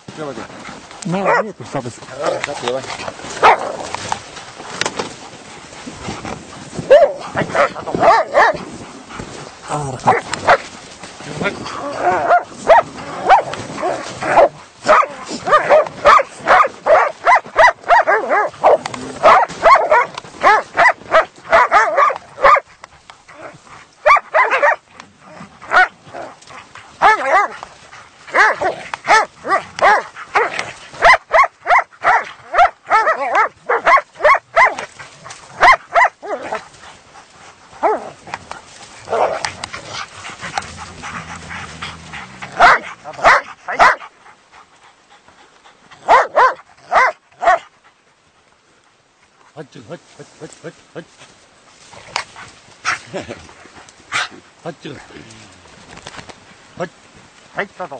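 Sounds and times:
dogs barking: 0:01.1 - 0:01.6, 0:03.2 - 0:04.0, 0:06.7 - 0:08.9, 0:10.0 - 0:10.8, 0:11.9 - 0:22.7, 0:23.3 - 0:24.9, 0:25.6 - 0:36.6, 0:37.8 - 0:38.2, 0:39.0 - 0:44.1, 0:46.0 - 0:47.7.

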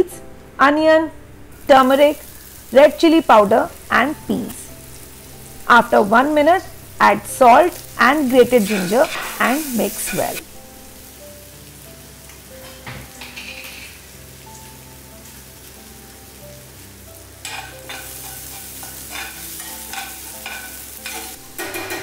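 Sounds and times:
food sizzling in oil: 0:01.5 - 0:22.0
spatula scraping pan: 0:08.2 - 0:10.4, 0:17.4 - 0:22.0.

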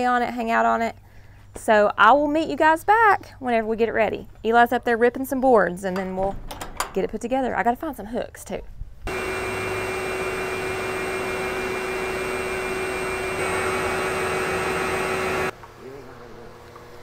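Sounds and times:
woodshop machine whirring: 0:09.1 - 0:15.5.

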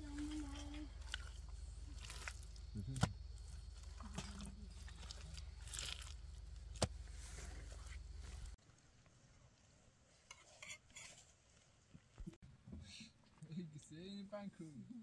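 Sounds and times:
steady low hum: 0:00.0 - 0:08.6
mud squelching under hand: 0:00.1 - 0:08.6.

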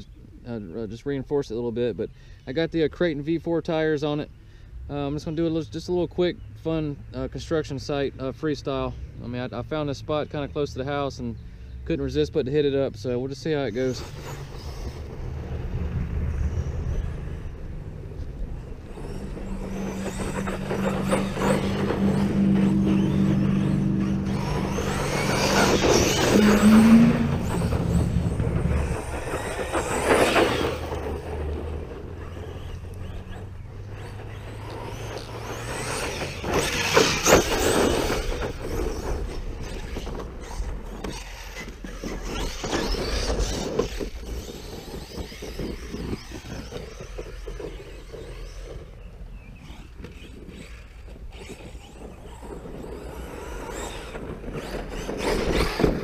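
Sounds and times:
rc truck motor whining: 0:12.6 - 0:56.0
steady low drone: 0:15.0 - 0:37.0.

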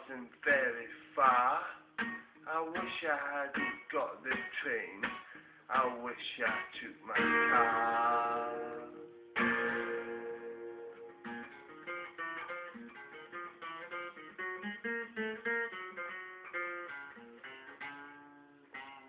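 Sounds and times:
acoustic guitar strummed and picked: 0:00.0 - 0:19.0.

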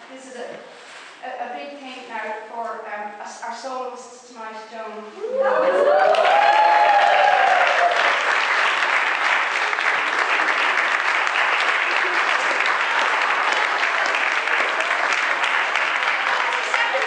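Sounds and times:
audience applauding: 0:05.5 - 0:17.0.

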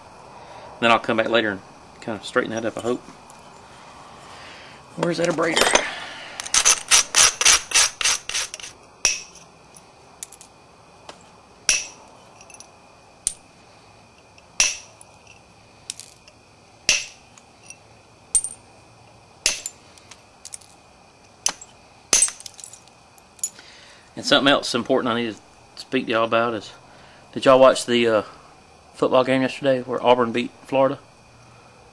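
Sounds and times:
stone scraping stone: 0:06.5 - 0:08.8
sharp stone clicks: 0:14.6 - 0:15.0.

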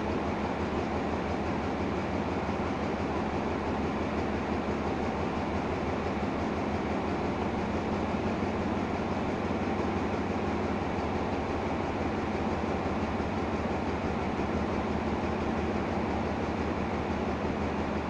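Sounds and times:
train diesel engine humming: 0:00.0 - 0:18.0.

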